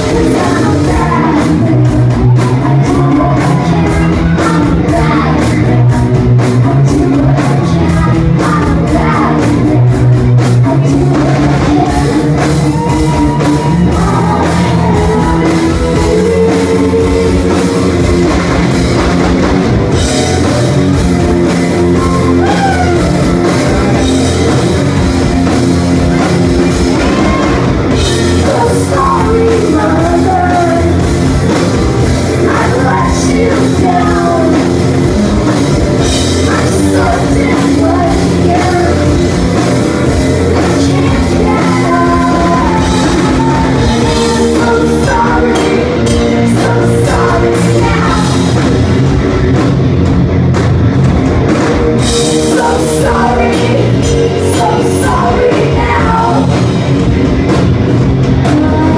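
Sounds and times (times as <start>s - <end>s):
woman singing lead vocals: 0.0s - 49.1s, 52.0s - 57.0s, 58.2s - 58.9s
live rock band playing: 0.0s - 58.9s.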